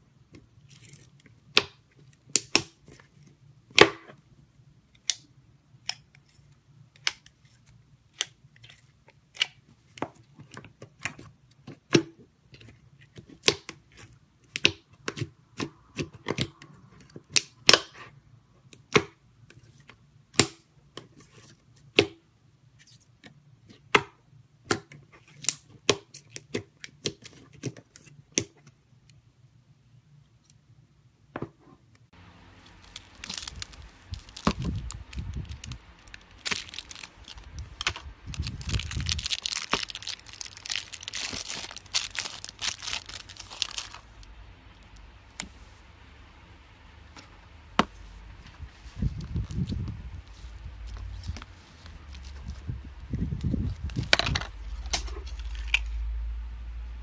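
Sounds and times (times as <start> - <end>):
faint low hum: 26.7 - 57.0.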